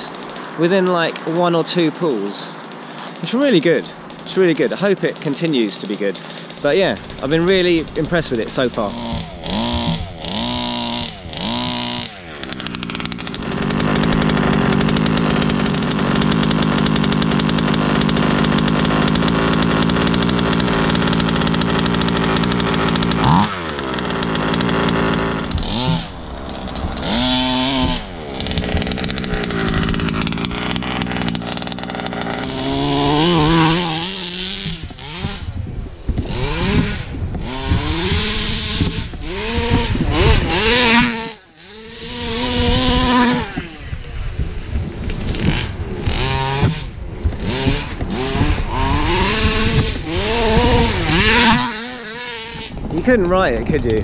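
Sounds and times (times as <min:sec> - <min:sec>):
model buggy engine revving: 0:00.0 - 0:54.0.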